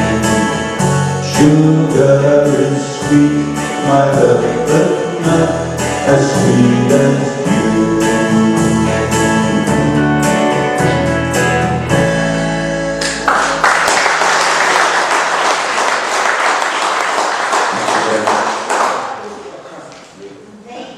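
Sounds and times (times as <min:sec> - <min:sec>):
keyboard playing chords: 0:00.0 - 0:15.8
audience applause: 0:13.0 - 0:19.5.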